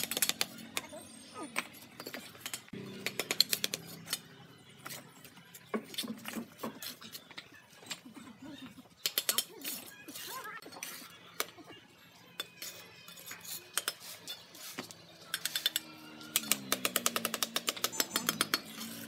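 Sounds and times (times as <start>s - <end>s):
trowel tapping on bricks: 15.3s - 18.8s.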